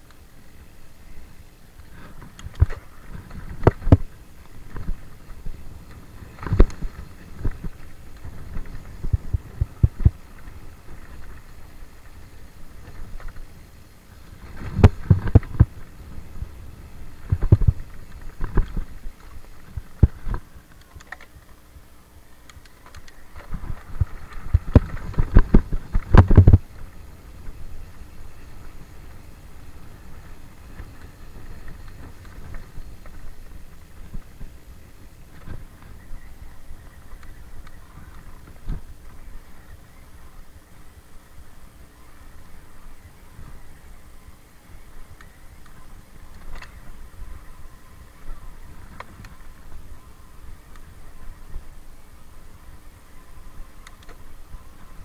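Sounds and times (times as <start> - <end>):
tyres rumbling on dirt: 1.6 - 43.8
bike rattling and clunking: 1.7 - 21.6, 22.6 - 39.9.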